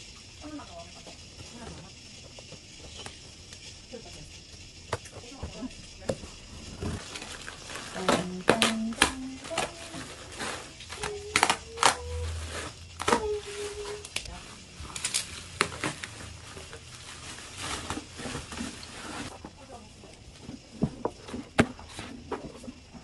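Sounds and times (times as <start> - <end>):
plastic squeaking: 5.0 - 19.4
plastic air pillows popping: 6.0 - 12.2
bubble wrap crinkling: 6.6 - 19.4.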